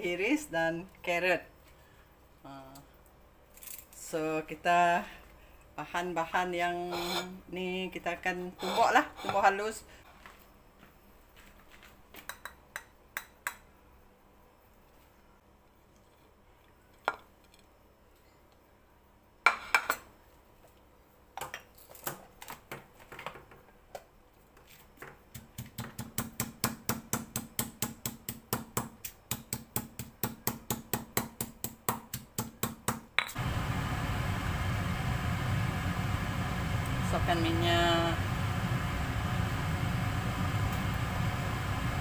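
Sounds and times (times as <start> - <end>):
steady loud hum: 33.4 - 42.0.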